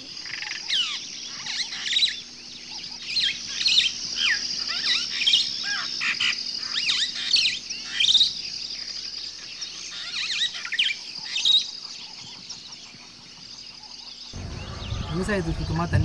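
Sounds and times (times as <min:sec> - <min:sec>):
birds chirping: 0:00.0 - 0:16.0
high trilling drone: 0:14.4 - 0:16.0.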